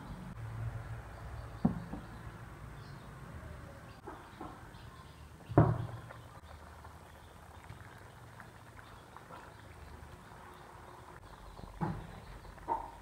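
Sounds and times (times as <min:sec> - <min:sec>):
curry simmering with bubbling: 0:04.0 - 0:13.0.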